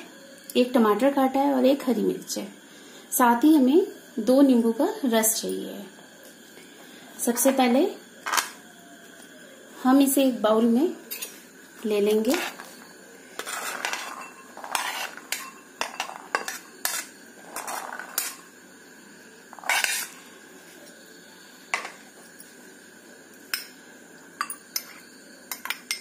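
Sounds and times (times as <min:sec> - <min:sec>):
plate scraping: 0:12.2 - 0:18.5, 0:19.5 - 0:20.2
plate and bowl clinking: 0:13.4 - 0:18.5.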